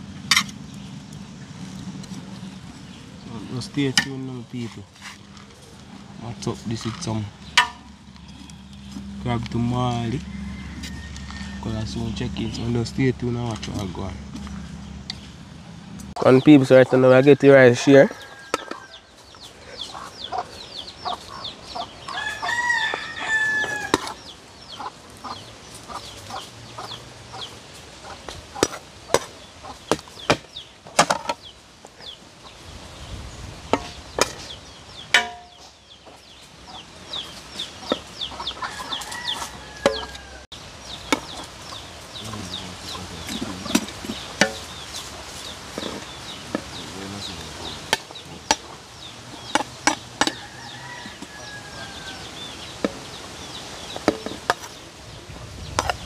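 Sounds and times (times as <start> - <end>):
chickens clucking: 0.0 - 32.6, 33.7 - 56.0
rooster crowing: 7.9 - 13.0, 16.9 - 19.3, 22.1 - 24.3, 38.5 - 40.5, 50.0 - 52.6.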